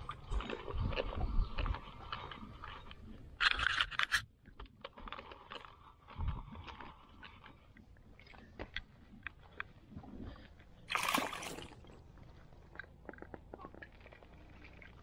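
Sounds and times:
fishing reel scraping and clicking: 0:01.7 - 0:04.2.

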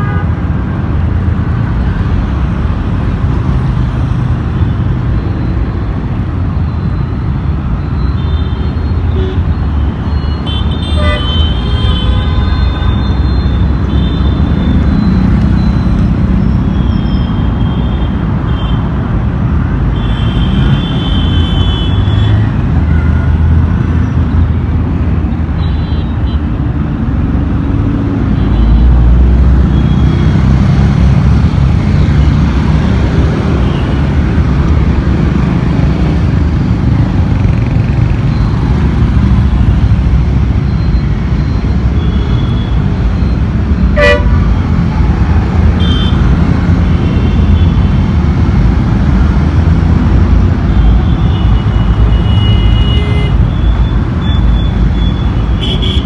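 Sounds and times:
road traffic passing: 0:00.0 - 0:56.0
horn toots: 0:44.0 - 0:44.4.

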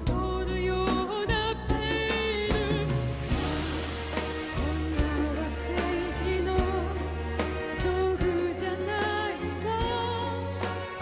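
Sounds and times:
low bass: 0:00.0 - 0:10.5
woman singing into a microphone: 0:00.0 - 0:11.0
sharp drum hits: 0:02.5 - 0:05.3.

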